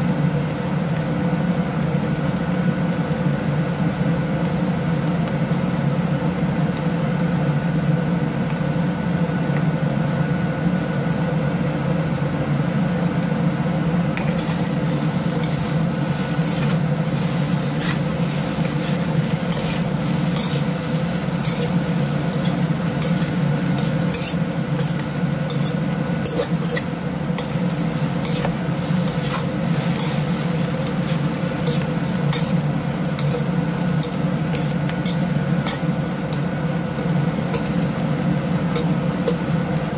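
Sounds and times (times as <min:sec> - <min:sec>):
rice sizzling in a wok: 0:00.0 - 0:39.9
spatula scraping a pan: 0:14.2 - 0:37.7.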